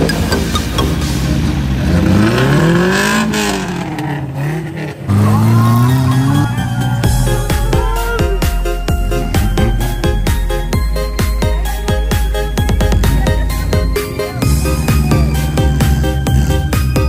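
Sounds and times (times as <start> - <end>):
electronic dance music: 0.0 - 1.8, 5.7 - 17.0
car engine revving: 0.0 - 17.0.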